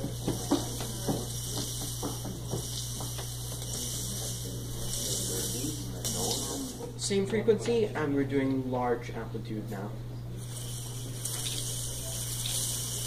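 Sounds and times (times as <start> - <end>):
slinky coils rattling and scraping: 0.0 - 7.0, 10.4 - 13.0
steady low hum: 0.0 - 13.0.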